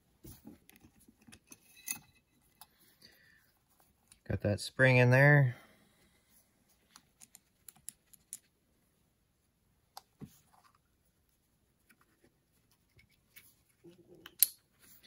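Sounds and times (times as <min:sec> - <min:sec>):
clicks of small metal parts: 0:14.2 - 0:14.6.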